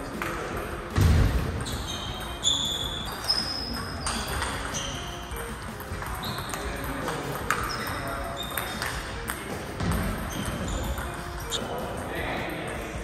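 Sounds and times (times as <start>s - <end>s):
bell-like background music: 1.5s - 13.0s.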